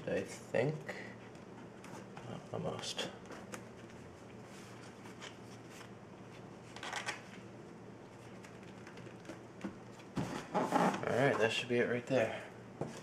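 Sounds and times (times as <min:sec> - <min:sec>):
vinyl liner rustling and rubbing: 0:01.2 - 0:07.5, 0:08.1 - 0:11.5.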